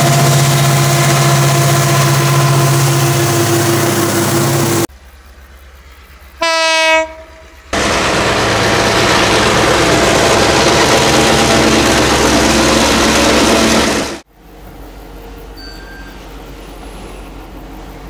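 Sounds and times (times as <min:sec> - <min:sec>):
locomotive horn blast: 0:00.0 - 0:04.8, 0:06.4 - 0:08.0
diesel locomotive engine: 0:00.0 - 0:18.0
wheels rumbling on rail: 0:00.0 - 0:18.0.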